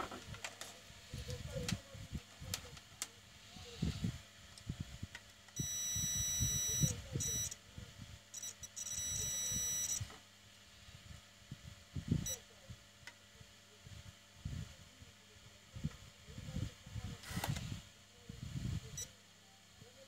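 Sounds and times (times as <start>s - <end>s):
multimeter continuity beeps: 5.6s - 7.6s, 8.3s - 10.1s, 12.2s - 12.5s, 18.9s - 19.2s.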